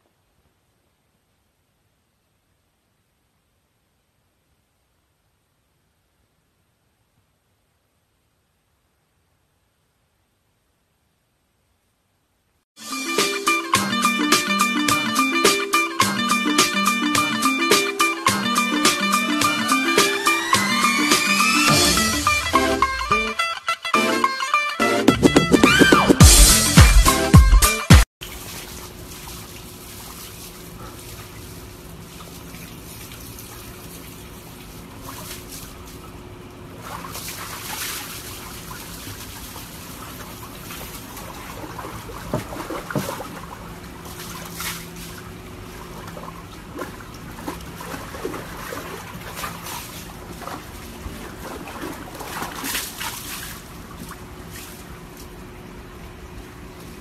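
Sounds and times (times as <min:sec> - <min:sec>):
water trickling: 0:28.2 - 0:56.8
water splashing in a tub: 0:28.2 - 0:57.0.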